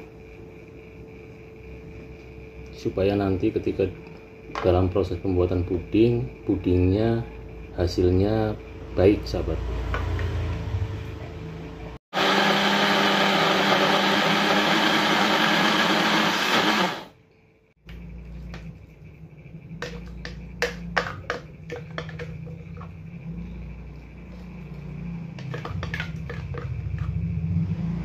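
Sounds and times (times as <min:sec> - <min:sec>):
blender grinding: 0:12.1 - 0:17.2.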